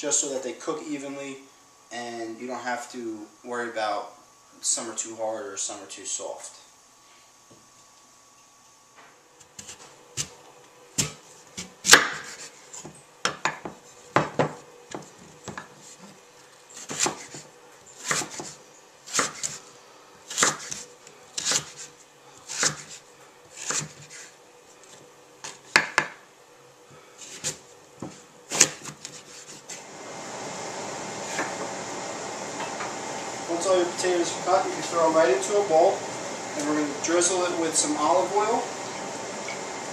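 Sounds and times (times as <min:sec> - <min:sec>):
knife slicing on cutting board: 0:22.5 - 0:23.0, 0:23.6 - 0:24.3.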